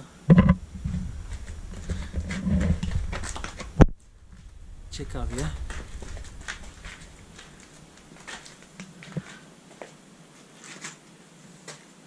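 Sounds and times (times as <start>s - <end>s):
clicks and rustles of movement: 0.3s - 4.6s, 5.2s - 9.4s.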